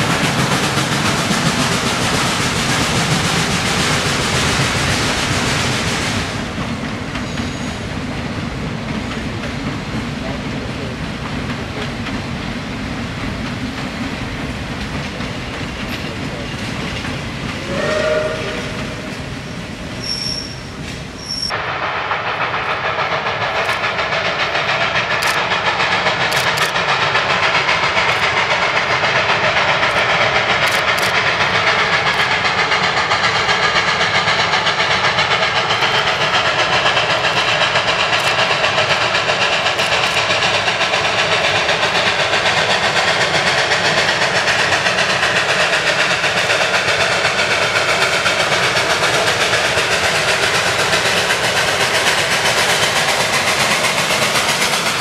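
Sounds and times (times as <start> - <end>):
steam locomotive exhaust beats: 0.0 - 55.0
train whistle: 17.6 - 19.1.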